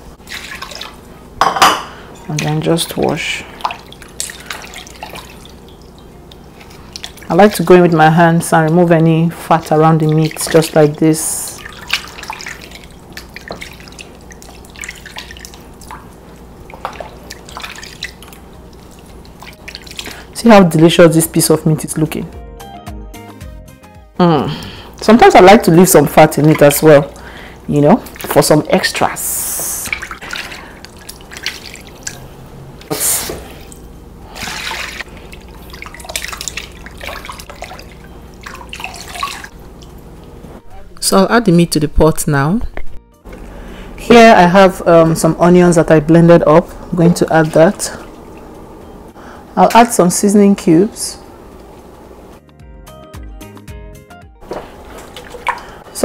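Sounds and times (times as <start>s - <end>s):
water dripping and splashing: 0.2s - 1.2s, 2.2s - 9.0s, 9.6s - 20.4s, 26.1s - 40.4s, 47.0s - 48.6s, 54.4s - 56.0s
water splash: 11.5s - 16.1s, 29.6s - 32.2s, 32.9s - 39.6s, 54.4s - 56.0s.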